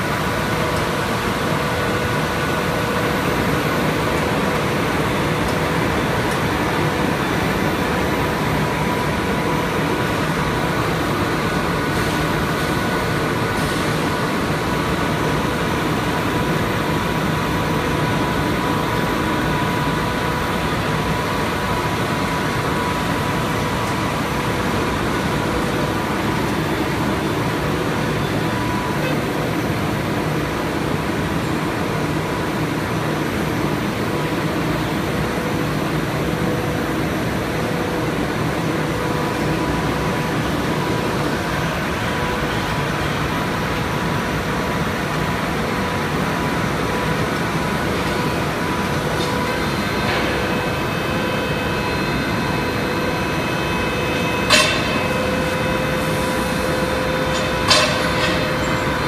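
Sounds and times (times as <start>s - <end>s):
high machine whine: 0.0s - 59.0s
machine running: 0.0s - 59.0s.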